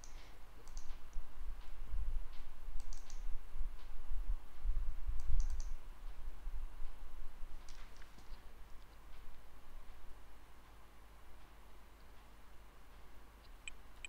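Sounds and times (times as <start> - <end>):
keyboard and mouse clicks: 0.0 - 1.0, 2.8 - 3.2, 5.2 - 5.8.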